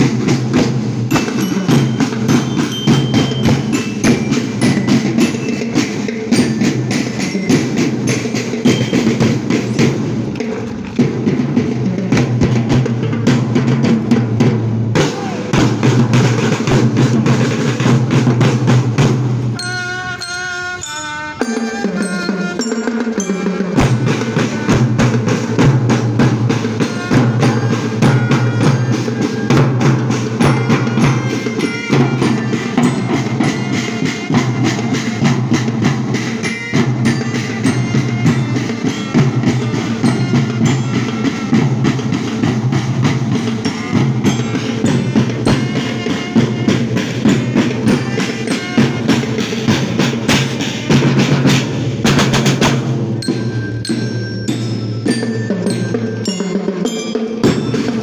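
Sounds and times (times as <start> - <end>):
marching snare drums: 0.0 - 58.0
bell lyra notes: 1.1 - 10.3, 19.6 - 50.1, 53.2 - 58.0.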